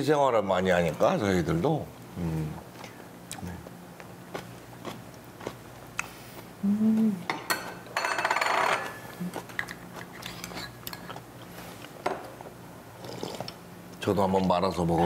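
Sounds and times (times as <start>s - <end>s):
spoons clinking against bowls: 7.3s - 9.0s.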